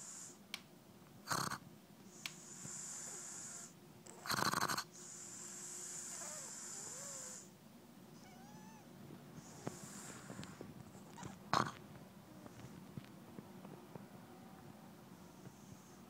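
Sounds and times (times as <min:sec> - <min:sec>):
dog snoring: 0:01.2 - 0:07.5, 0:09.4 - 0:11.8, 0:15.2 - 0:16.0
dog snort: 0:01.3 - 0:01.6, 0:02.2 - 0:07.5, 0:09.4 - 0:11.8.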